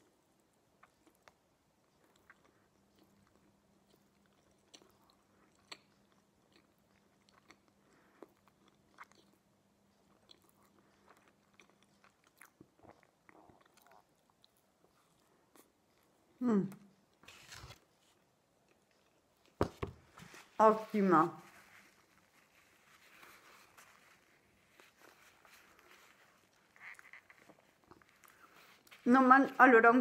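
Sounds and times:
faint steady hum: 0:00.0 - 0:30.0
chewing with mouth smacks: 0:00.7 - 0:16.3, 0:21.8 - 0:29.0.

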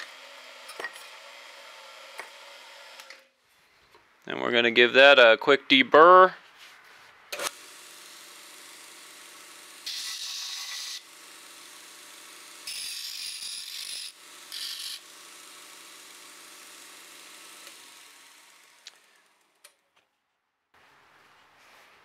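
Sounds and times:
bolt grinding on sander belt: 0:07.4 - 0:19.1
belt sander running: 0:07.5 - 0:19.5.

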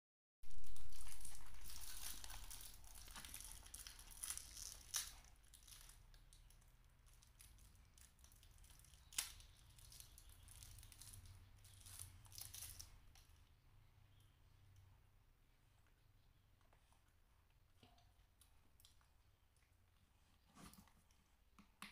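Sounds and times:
plastic wrapper crinkling and tearing: 0:00.5 - 0:13.3.

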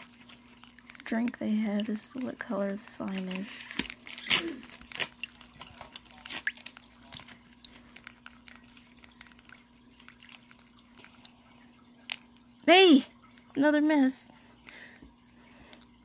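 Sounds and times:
stick stirring wet slime: 0:00.0 - 0:11.4.

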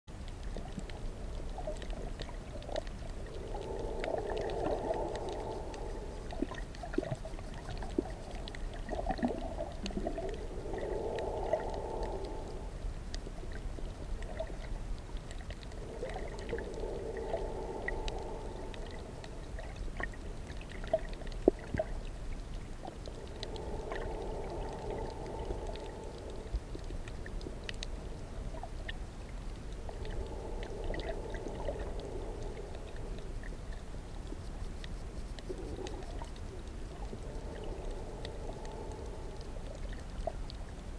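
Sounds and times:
steady low rumble: 0:00.1 - 0:40.9
faint clicks: 0:00.2 - 0:40.9
underwater air bubbles: 0:00.2 - 0:40.9.

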